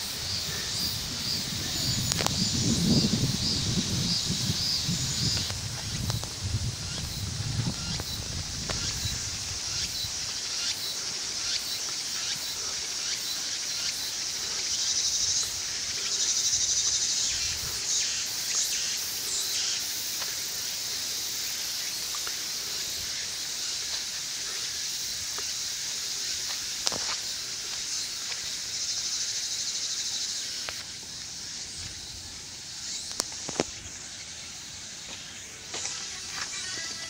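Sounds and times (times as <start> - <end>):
insects chorus: 0.0 - 37.0
footsteps on dirt path: 5.0 - 10.4, 20.1 - 20.5, 21.9 - 24.2, 25.2 - 28.6, 35.0 - 37.0.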